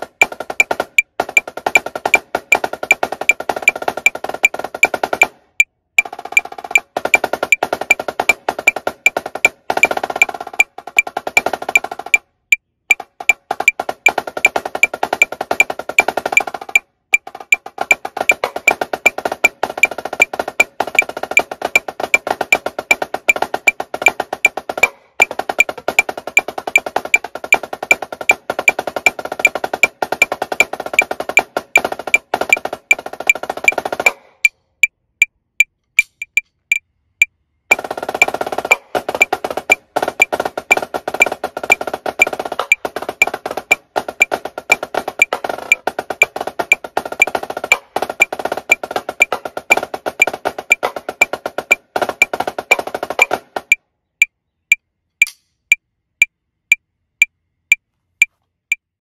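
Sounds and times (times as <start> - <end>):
marching snare drum: 0.0 - 12.3, 12.9 - 34.5, 37.7 - 53.8
metronome clicking: 2.9 - 5.0, 5.6 - 12.2, 12.9 - 34.9, 35.6 - 36.8, 37.7 - 55.8.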